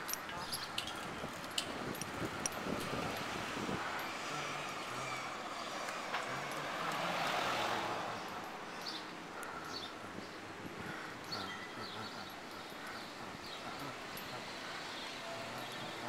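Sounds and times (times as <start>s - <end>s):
traffic: 0.0s - 16.0s.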